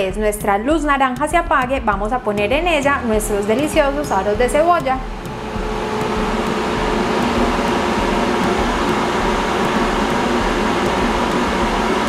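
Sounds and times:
air fryer fan whoosh: 0:02.6 - 0:12.0.

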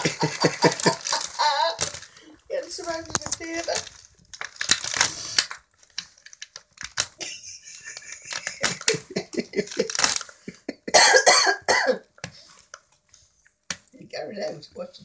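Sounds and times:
wrapping paper rustling: 0:00.0 - 0:10.7
loud cough-like bursts: 0:10.9 - 0:12.0.

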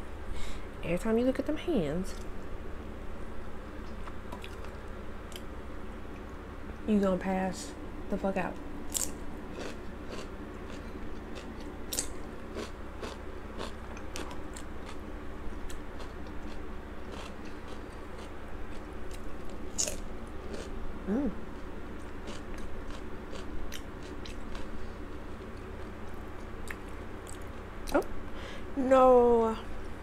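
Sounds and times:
chewing and crunching: 0:03.8 - 0:05.5, 0:08.9 - 0:28.0.

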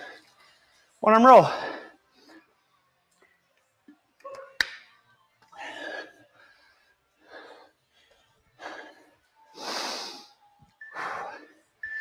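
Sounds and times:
person breathing hard: 0:05.5 - 0:11.7.

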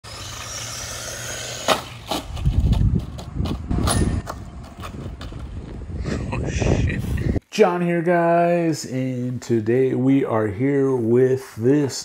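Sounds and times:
rc car motor rumble: 0:00.0 - 0:02.7.

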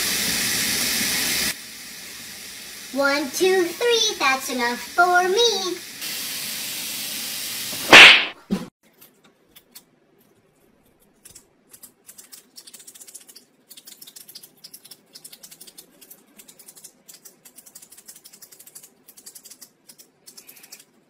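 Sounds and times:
pen clicking rapidly: 0:12.1 - 0:20.9.

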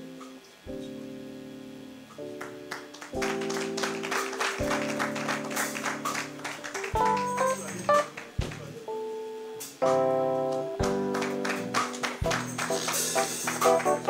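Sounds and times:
keyboard music held chords: 0:00.0 - 0:14.0
rhythmic hand clapping: 0:02.2 - 0:08.8, 0:09.8 - 0:14.0.

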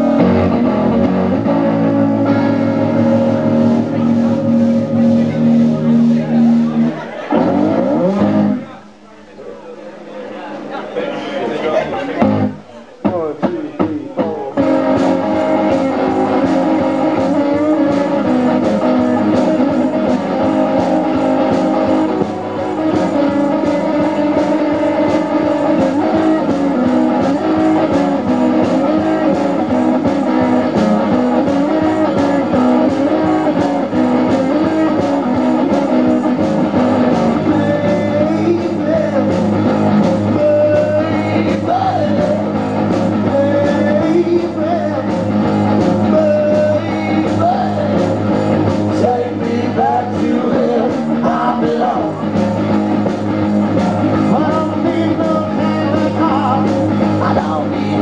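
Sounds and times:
steady drum beat: 0:00.0 - 0:08.6, 0:12.2 - 0:58.0
electric guitar: 0:00.0 - 0:09.0, 0:11.6 - 0:58.0
person singing: 0:13.0 - 0:36.1, 0:37.0 - 0:39.5, 0:40.1 - 0:45.3, 0:46.0 - 0:52.4, 0:54.0 - 0:58.0.

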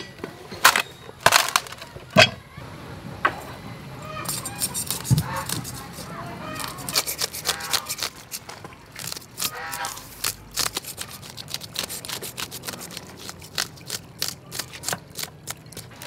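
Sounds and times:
fish scaler scraping scales: 0:04.0 - 0:16.0.

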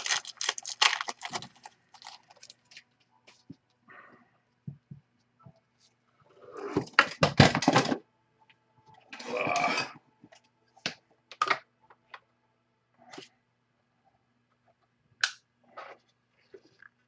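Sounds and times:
wrapper tearing and crinkling: 0:00.0 - 0:02.7.

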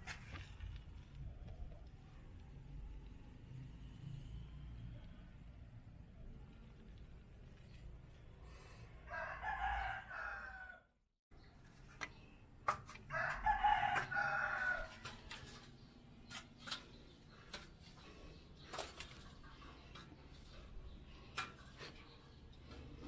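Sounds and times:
rooster crowing: 0:09.0 - 0:11.0, 0:13.1 - 0:15.0.

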